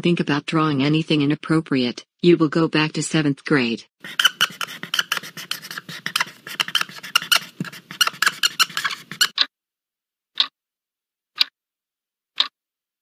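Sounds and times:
pencil scribbling on paper: 0:04.0 - 0:09.4.

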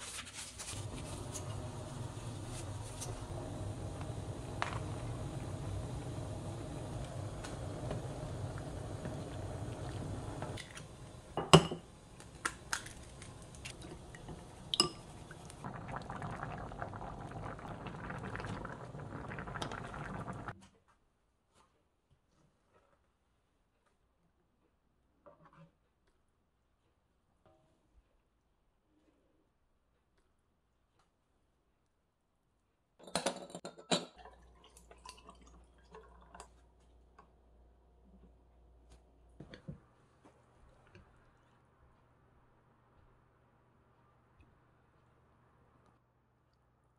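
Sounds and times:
broth simmering: 0:00.7 - 0:20.6, 0:34.1 - 0:38.2.

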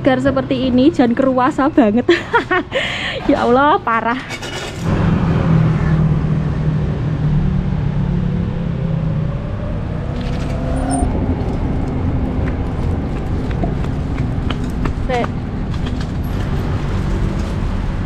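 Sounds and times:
steady noisy rumble: 0:04.8 - 0:16.8
vehicle engine running: 0:04.9 - 0:18.0.

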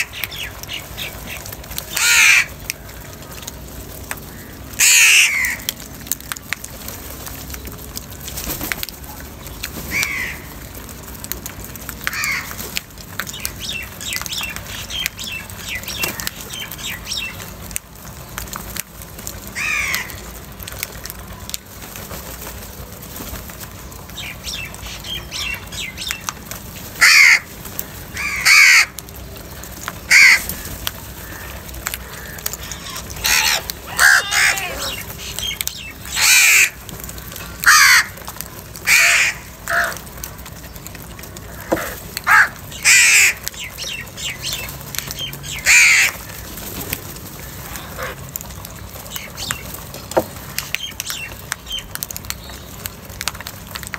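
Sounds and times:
crows cawing: 0:00.0 - 0:02.7, 0:04.3 - 0:05.8, 0:09.9 - 0:10.5, 0:12.0 - 0:12.6, 0:19.6 - 0:20.3, 0:27.0 - 0:29.0, 0:30.1 - 0:35.1, 0:36.1 - 0:36.8, 0:37.4 - 0:40.1, 0:41.5 - 0:44.3, 0:45.4 - 0:46.4, 0:47.6 - 0:48.2.

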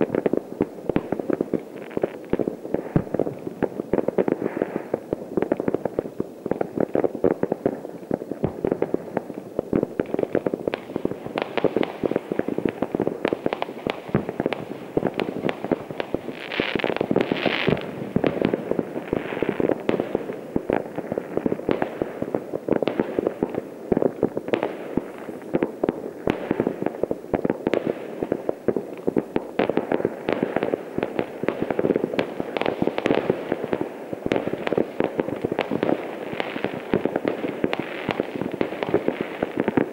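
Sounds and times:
firecrackers crackling and banging: 0:00.0 - 0:39.9
firework hiss: 0:10.2 - 0:22.3.

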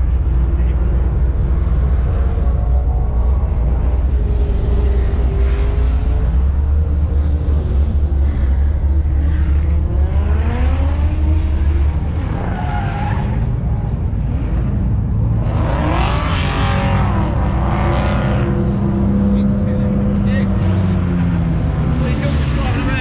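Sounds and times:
strong low rumble: 0:00.0 - 0:12.5
car engines revving: 0:00.0 - 0:23.0
tyre squeal: 0:11.9 - 0:14.3.

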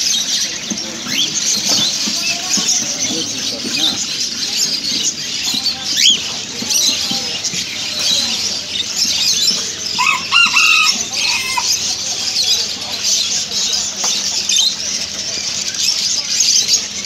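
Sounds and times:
parrots chattering and chirping: 0:00.0 - 0:17.0.

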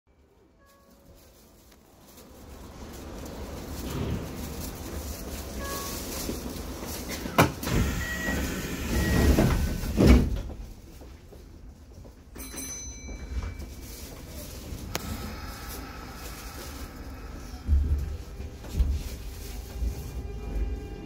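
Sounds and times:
train sliding doors closing: 0:02.2 - 0:10.9, 0:13.2 - 0:21.0.

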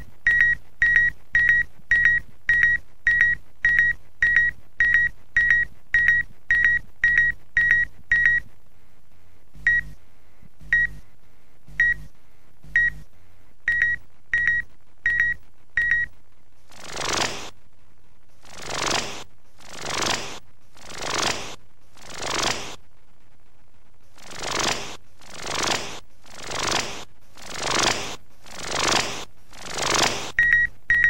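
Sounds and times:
low hum: 0:00.0 - 0:31.0
short high electronic beeps: 0:13.7 - 0:16.1, 0:24.3 - 0:31.0.

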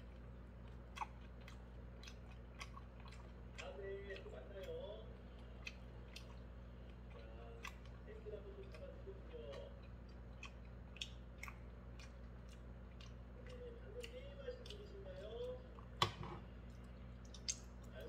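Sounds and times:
person chewing with wet smacks: 0:00.0 - 0:18.0.

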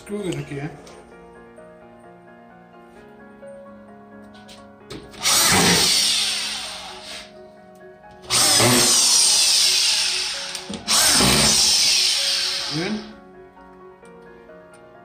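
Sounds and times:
drywall screw gun motor whir: 0:05.2 - 0:07.3, 0:08.3 - 0:13.0.

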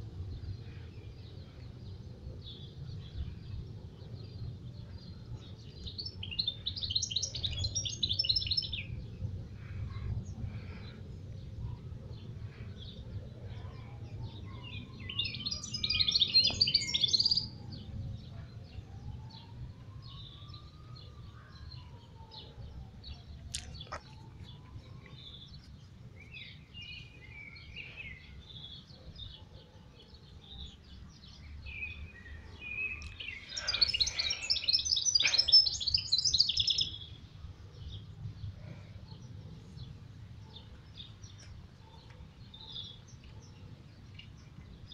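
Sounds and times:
finch twittering song: 0:05.0 - 0:09.0, 0:14.3 - 0:17.6, 0:30.4 - 0:37.2
steady low rumble: 0:07.4 - 0:15.5.

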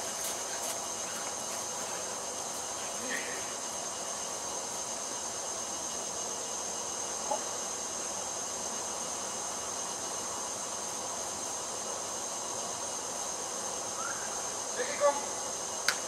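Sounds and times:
high-pitched whine: 0:00.0 - 0:15.7
even hiss: 0:00.0 - 0:16.0.

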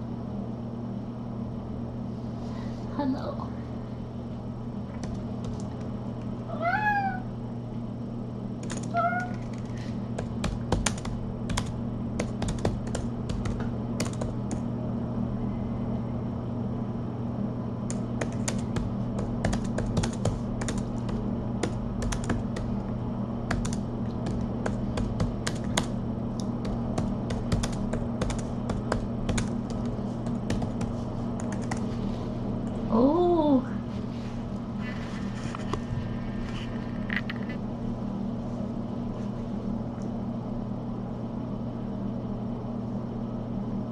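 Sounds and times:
low electrical hum: 0:00.0 - 0:43.9
cat meowing: 0:06.5 - 0:07.3, 0:08.9 - 0:09.4.

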